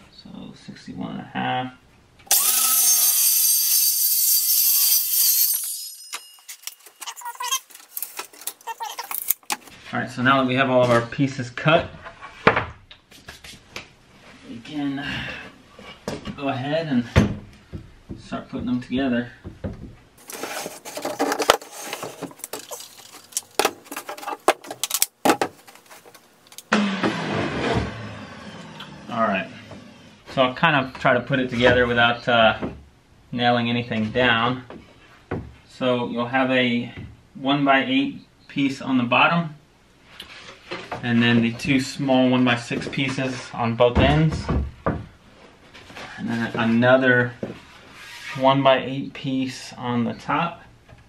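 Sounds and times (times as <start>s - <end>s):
circular saw cutting wood: 2.3s - 6.8s, 26.7s - 30.3s
tools and boards clattering: 5.0s - 9.7s, 19.5s - 26.2s
knocks and rattles of handling: 6.1s - 9.7s, 19.4s - 26.6s.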